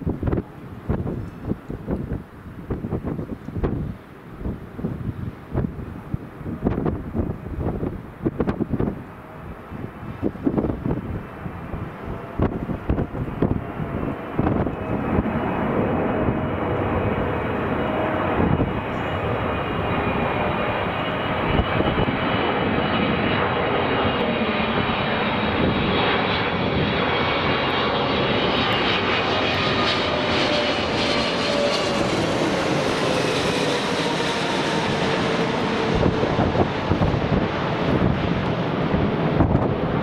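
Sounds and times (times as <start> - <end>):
jet engines passing overhead: 0.0 - 40.0
wind buffeting microphone: 0.0 - 40.0.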